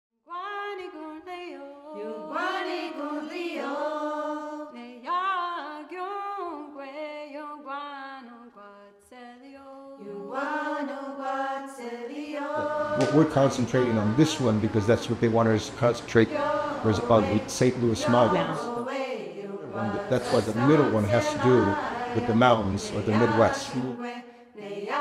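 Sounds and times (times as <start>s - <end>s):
person singing unaccompanied: 0.4s - 7.0s, 11.7s - 25.0s.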